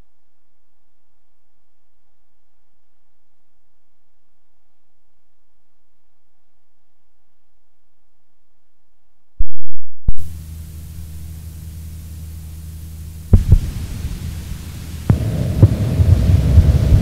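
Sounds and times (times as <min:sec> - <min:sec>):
electrical mains hum: 0:10.1 - 0:17.0
sharp pops: 0:13.3 - 0:17.0.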